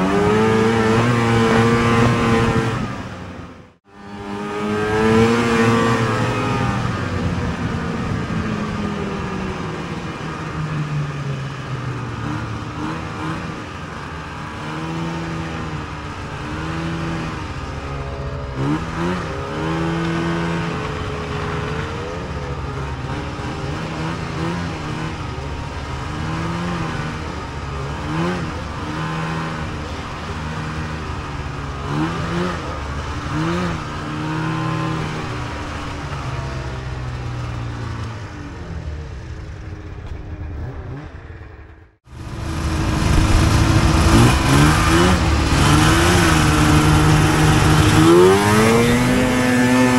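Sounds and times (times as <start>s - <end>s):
snowmobile engine with throttle blips: 0.0s - 49.9s.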